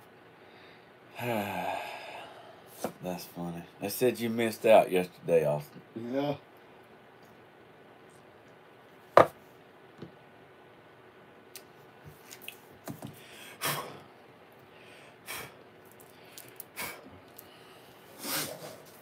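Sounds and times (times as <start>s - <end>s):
man breathing: 0.4s - 2.8s, 13.1s - 14.1s, 14.7s - 18.8s
short breathy puffs: 16.3s - 19.0s.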